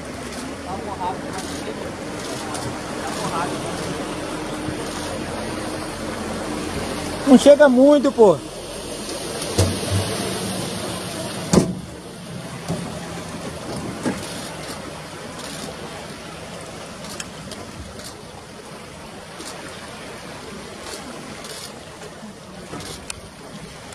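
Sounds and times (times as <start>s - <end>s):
boat: 0.0s - 23.9s
river water rushing: 0.0s - 23.9s
faint clicks: 17.0s - 18.2s, 22.7s - 23.3s.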